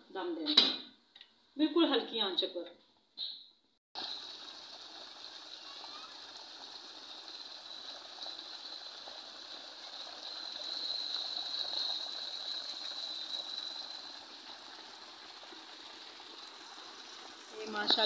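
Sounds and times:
water gushing into tank: 4.0s - 18.0s.

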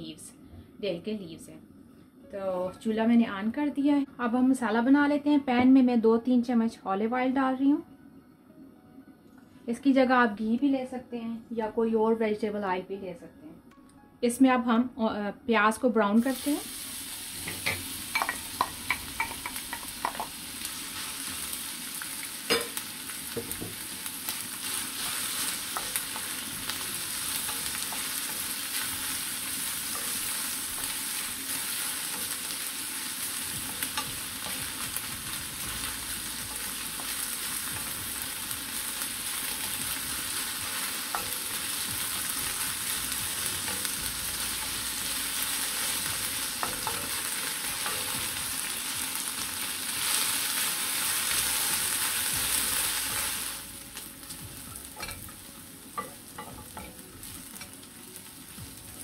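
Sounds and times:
onions sizzling in pan: 16.1s - 59.0s.

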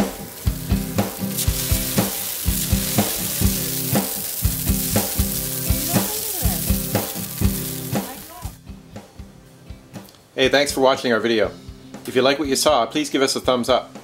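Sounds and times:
shower spraying onto rock: 0.0s - 8.6s
background music with beat: 0.0s - 14.0s.

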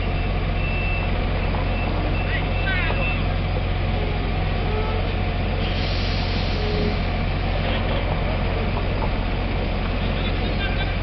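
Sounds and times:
truck diesel engine droning: 0.0s - 11.0s
brief hiss: 5.7s - 7.0s.

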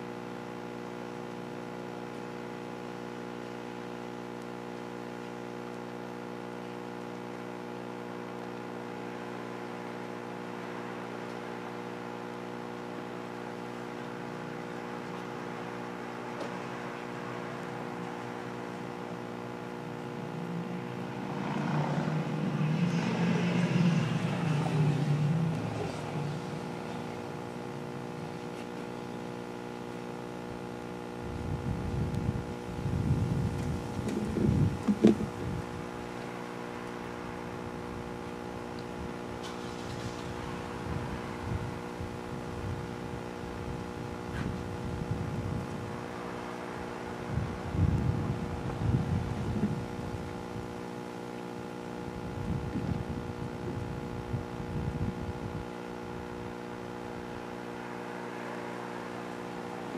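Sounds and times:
steady hum of held tones: 0.0s - 59.9s
rough rush of sound: 9.0s - 29.0s, 32.9s - 50.5s, 56.5s - 59.9s.

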